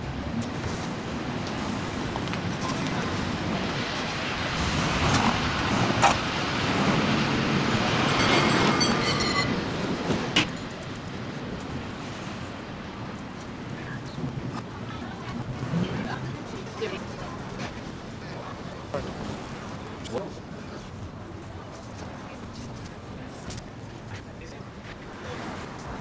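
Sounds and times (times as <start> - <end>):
traffic noise: 0.0 - 26.0
metallic bell ringing: 7.9 - 9.8.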